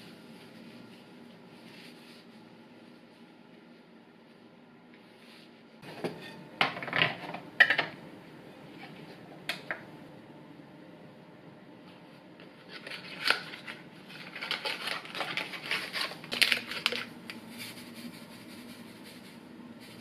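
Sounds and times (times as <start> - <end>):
faint steady hum: 0.0 - 20.0
yeast packet crinkling: 12.8 - 17.4.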